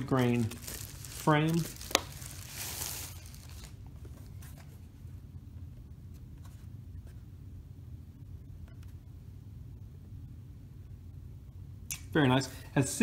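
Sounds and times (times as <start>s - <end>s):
plastic wrapping rustling: 0.0s - 4.5s
low steady hum: 0.0s - 13.0s.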